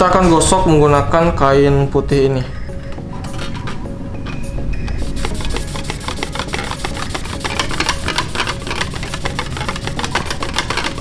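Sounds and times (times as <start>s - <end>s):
metal plate rattling on grate: 6.1s - 11.0s.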